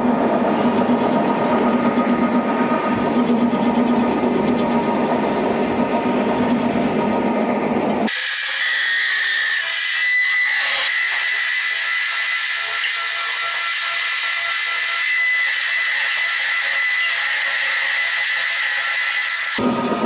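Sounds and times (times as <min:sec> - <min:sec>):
metal lathe cutting steel: 0:08.1 - 0:20.0.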